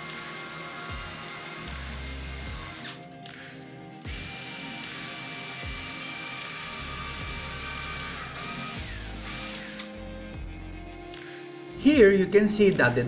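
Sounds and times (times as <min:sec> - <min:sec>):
cordless drill boring through wood: 0:00.0 - 0:03.0, 0:04.1 - 0:10.0.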